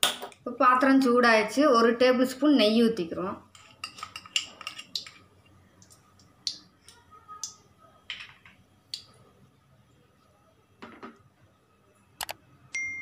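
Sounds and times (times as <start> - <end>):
ghee ticking and popping in pan: 3.9 - 7.6, 8.4 - 9.2.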